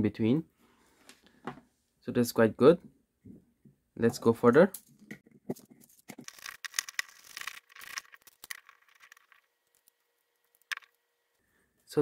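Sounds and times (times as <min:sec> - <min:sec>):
plastic parts clicking and scraping: 0:04.8 - 0:11.0.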